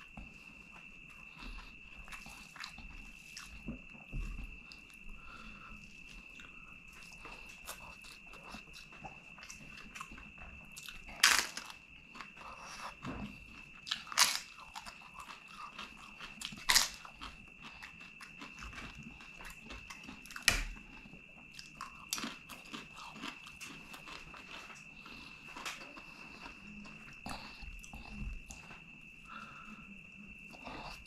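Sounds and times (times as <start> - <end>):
wet chewing and mouth clicks: 0.0 - 29.4
faint high whine: 0.0 - 31.0
crunching crisp papadam: 10.8 - 28.6.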